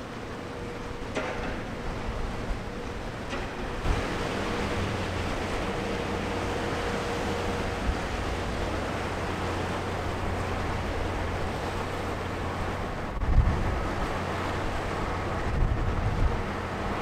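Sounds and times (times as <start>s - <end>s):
ship engine low rumble: 0.0s - 17.0s
water churning along hull: 0.0s - 17.0s
wind on microphone: 12.7s - 17.0s.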